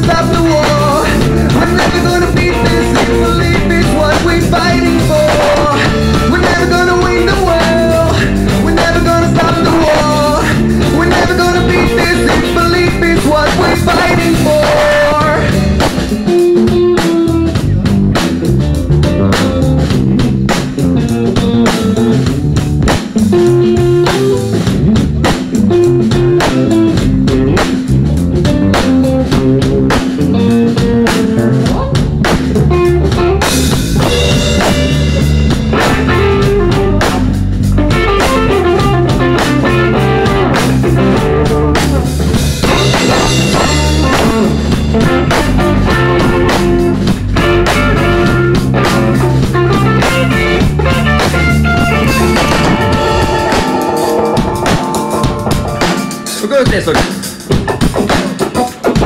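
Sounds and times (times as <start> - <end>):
drum kit: 0.0 - 59.0
electric guitars: 0.0 - 59.0
cymbals: 48.9 - 58.8.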